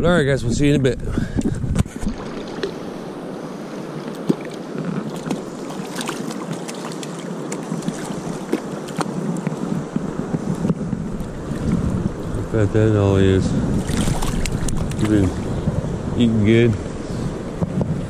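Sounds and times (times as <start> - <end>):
river current rushing: 2.0 - 17.6
fish splashing at surface: 13.8 - 15.1.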